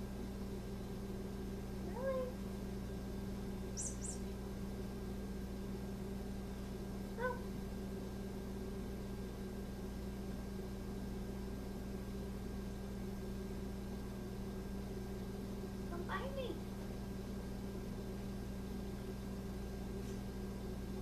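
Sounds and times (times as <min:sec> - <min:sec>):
steady low hum: 0:00.0 - 0:21.0
dog whining: 0:07.2 - 0:07.5.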